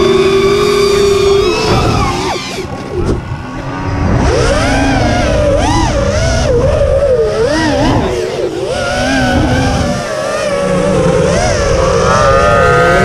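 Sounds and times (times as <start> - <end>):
drone motors whining: 0.0 - 13.0
wind noise on microphone: 0.0 - 13.0.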